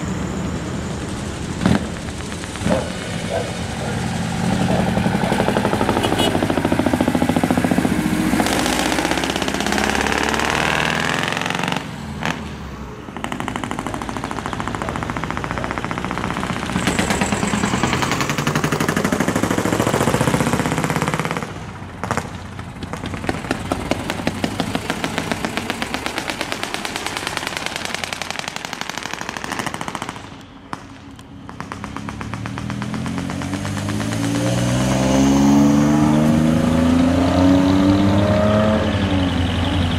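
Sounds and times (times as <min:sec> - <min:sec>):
diesel trucks driving past: 0:00.0 - 0:39.9.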